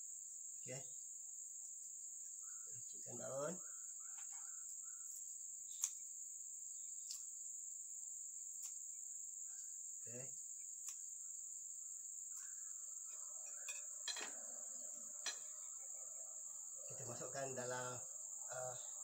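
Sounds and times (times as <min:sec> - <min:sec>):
crickets chirping: 0:00.0 - 0:19.0
leaves being cut by hand: 0:05.7 - 0:06.1, 0:08.5 - 0:08.9, 0:10.8 - 0:11.1.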